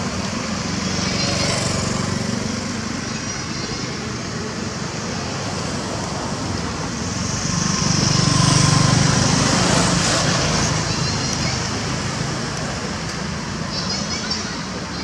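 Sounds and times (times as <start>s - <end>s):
road traffic: 0.0s - 15.0s
vehicle passing: 7.3s - 11.1s.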